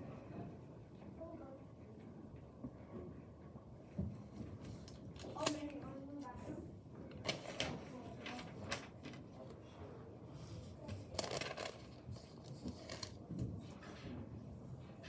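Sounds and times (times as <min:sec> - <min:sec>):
paper rustling and sliding: 0:07.2 - 0:09.2, 0:10.8 - 0:13.2.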